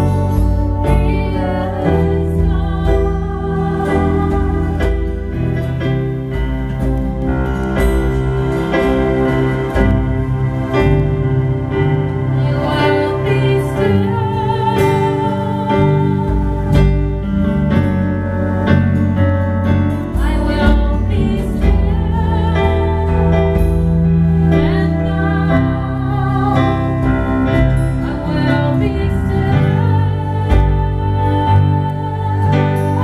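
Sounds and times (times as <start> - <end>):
woman singing with vibrato: 0.0 - 5.8, 12.3 - 17.1, 20.2 - 23.6, 24.2 - 33.0
sustained keyboard chords: 0.0 - 33.0.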